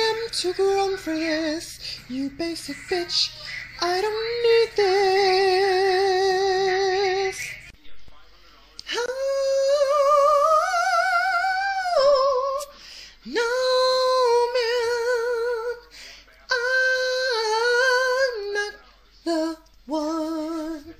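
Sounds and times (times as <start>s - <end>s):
man singing in falsetto: 8.9s - 15.8s.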